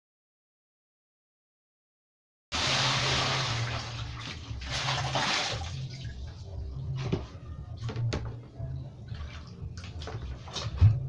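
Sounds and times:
water poured into plastic basin: 2.6s - 6.4s.

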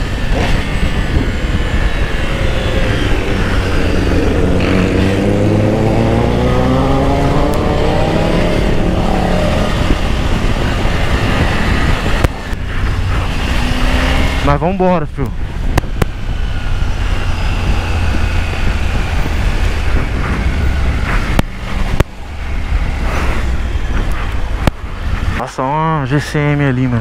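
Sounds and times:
motorcycle engine: 0.0s - 25.4s
wind rush on microphone: 0.0s - 27.0s.

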